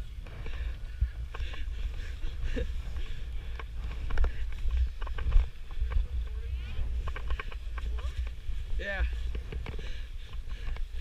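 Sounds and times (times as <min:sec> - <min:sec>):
wind buffeting microphone: 0:00.0 - 0:11.0
ski gear clicking: 0:00.1 - 0:11.0.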